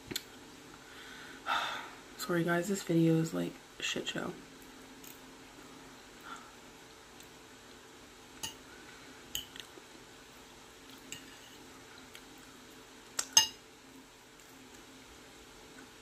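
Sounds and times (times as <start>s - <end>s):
faint steady hum: 0.0s - 16.0s
metal fork clinking on plate: 13.2s - 13.6s.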